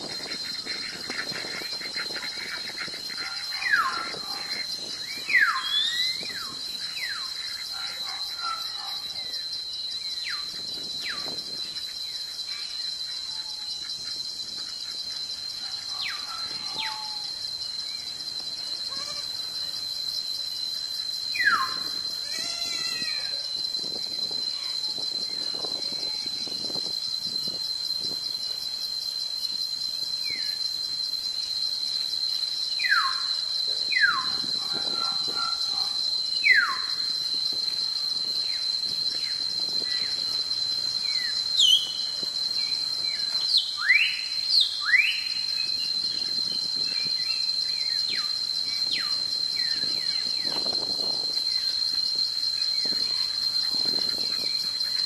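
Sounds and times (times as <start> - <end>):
high-pitched insect chorus buzzing: 0.0 - 55.0
bird whistles sliding downward: 5.2 - 6.3.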